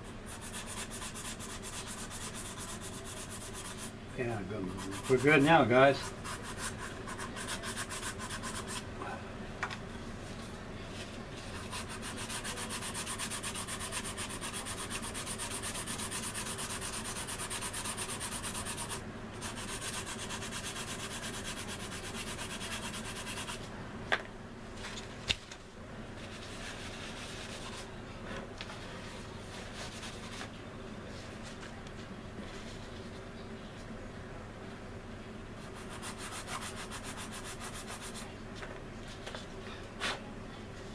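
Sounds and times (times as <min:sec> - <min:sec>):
sanding stick strokes: 0:00.3 - 0:03.9, 0:04.6 - 0:08.8, 0:11.6 - 0:23.6, 0:35.8 - 0:38.3.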